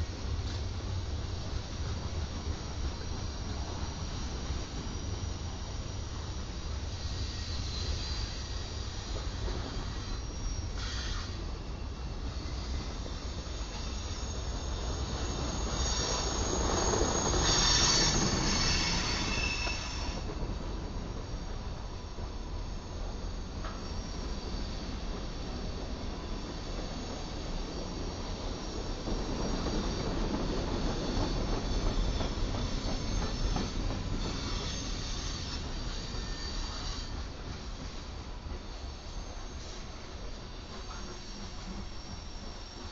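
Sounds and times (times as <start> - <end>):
train wheels rumbling on rail: 0.0 - 42.9
metallic wheel squeal: 12.3 - 20.3, 29.9 - 37.2.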